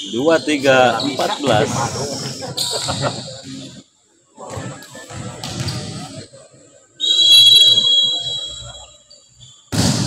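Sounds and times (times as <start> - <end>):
voices: 0.0 - 9.4
referee's whistle blast: 7.0 - 8.8.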